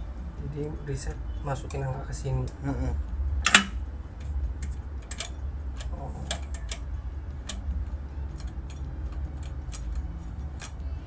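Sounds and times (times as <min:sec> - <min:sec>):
low steady hum: 0:00.0 - 0:11.0
safe dial clicking: 0:03.4 - 0:07.7.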